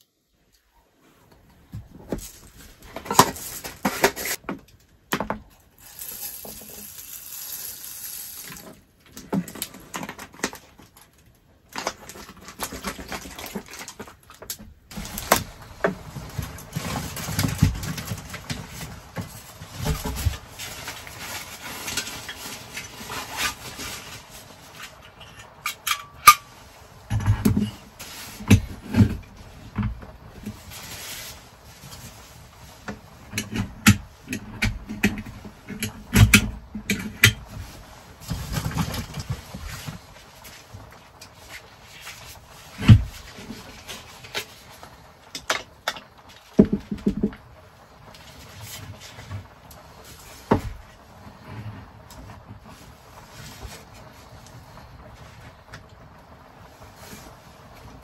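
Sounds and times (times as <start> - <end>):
rice poured into metal tin: 5.8 - 8.8.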